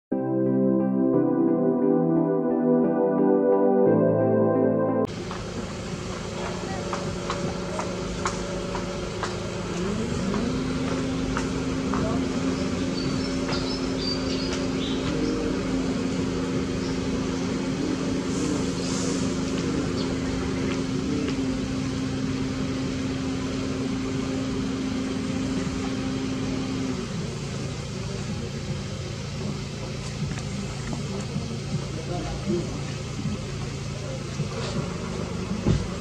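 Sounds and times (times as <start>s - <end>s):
motor humming: 5.1s - 28.0s.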